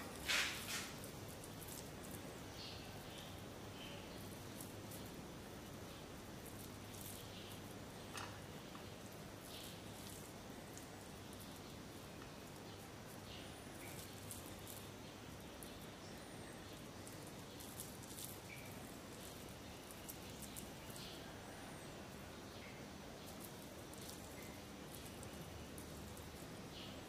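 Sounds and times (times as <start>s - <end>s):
squishing of ground meat: 8.6s - 21.5s.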